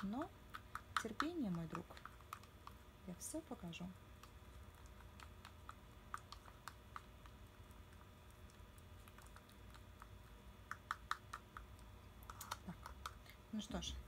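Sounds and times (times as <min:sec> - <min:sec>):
spatula clicking in slime jar: 0:00.0 - 0:02.8.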